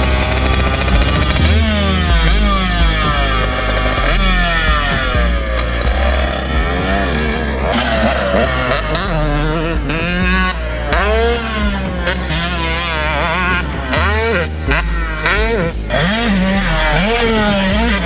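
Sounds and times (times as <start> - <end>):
motocross engine revving: 0.0 - 18.0.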